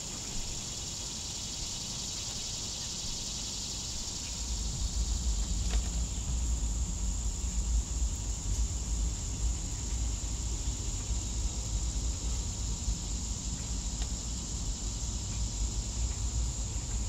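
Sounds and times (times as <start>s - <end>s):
insects chorus: 0.0s - 17.0s
low unsteady rumble: 4.4s - 13.2s.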